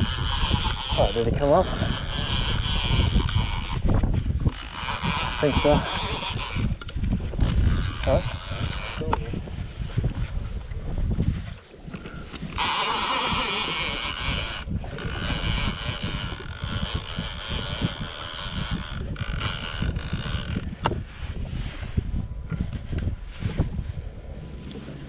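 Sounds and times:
fishing reel drag buzzing: 0:00.0 - 0:09.2, 0:12.4 - 0:21.8
wind rumbling on microphone: 0:00.0 - 0:25.0.

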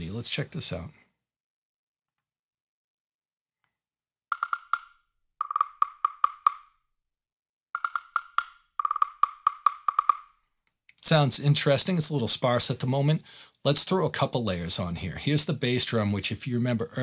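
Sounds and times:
jam block and wood block knocks: 0:04.3 - 0:06.8, 0:07.8 - 0:10.4.

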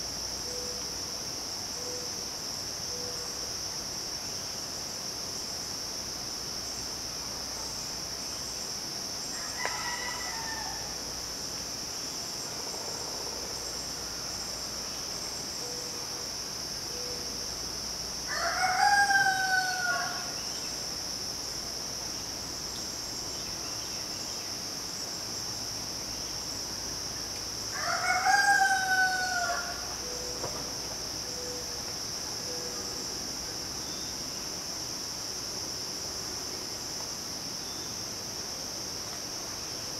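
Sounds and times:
insects droning: 0:00.0 - 0:39.9
rooster crowing: 0:09.3 - 0:11.0, 0:18.3 - 0:20.3, 0:27.7 - 0:29.9.

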